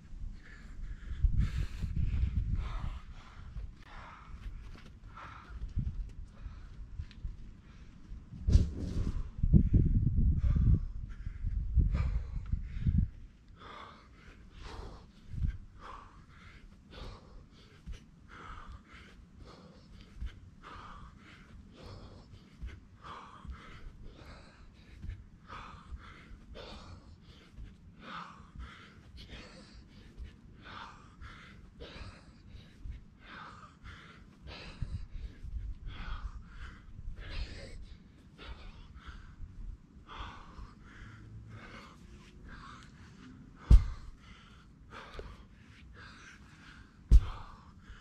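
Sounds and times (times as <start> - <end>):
man breathing hard: 0.0 - 48.0
low thuds and rumble: 8.3 - 13.1, 43.6 - 44.1, 47.1 - 47.7.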